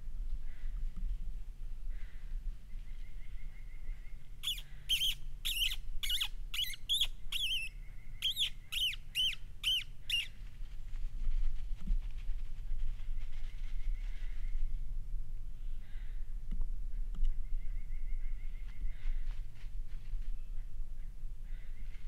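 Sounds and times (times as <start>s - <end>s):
high squeaks made with lips: 4.4s - 7.7s.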